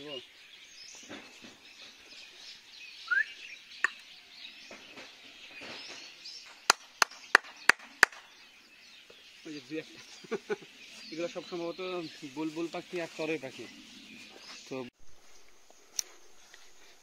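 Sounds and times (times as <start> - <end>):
small birds chirping: 0.0 - 17.0
sharp hand claps: 6.6 - 8.3.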